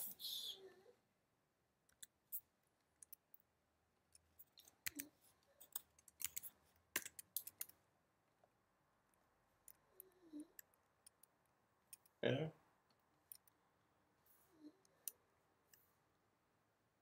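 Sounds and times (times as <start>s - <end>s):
mouse and keyboard clicks: 4.2s - 7.8s.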